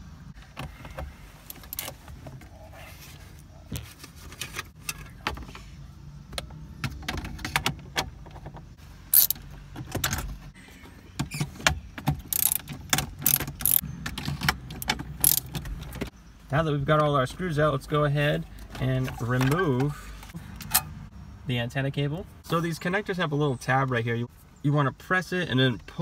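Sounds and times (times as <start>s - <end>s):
socket ratchet clicking: 9.2s - 9.4s, 12.2s - 13.8s, 14.7s - 15.6s.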